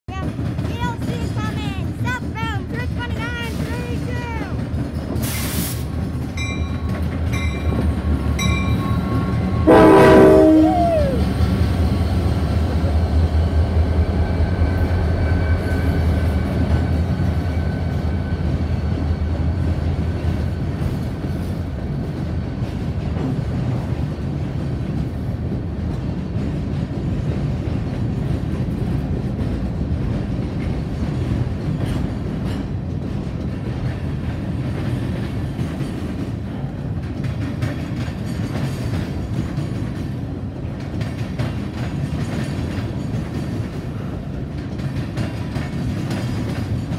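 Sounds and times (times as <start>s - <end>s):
wheels clacking over track joints: 0.1s - 9.5s, 16.2s - 46.9s
diesel locomotive engines: 0.1s - 46.9s
rail rumble: 0.1s - 46.9s.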